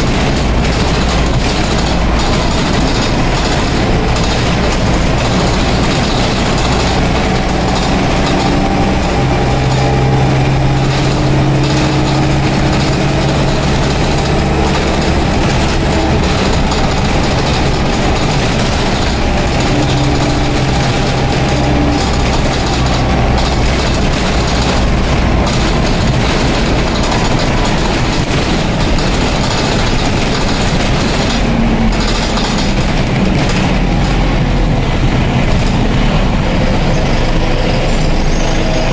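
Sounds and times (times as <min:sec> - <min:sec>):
bus diesel engine: 0:00.0 - 0:38.9
road and body noise: 0:00.0 - 0:38.9.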